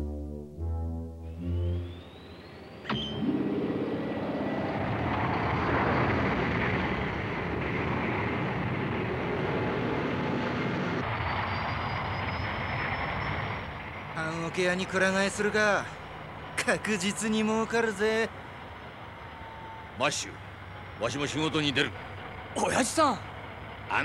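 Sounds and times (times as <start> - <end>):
spaceship engine whine: 0.0 - 19.9.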